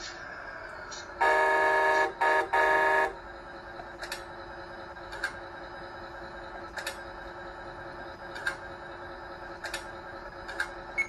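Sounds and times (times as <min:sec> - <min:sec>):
steady hum: 0:00.0 - 0:11.0
truck air horn through small speaker: 0:01.2 - 0:03.2.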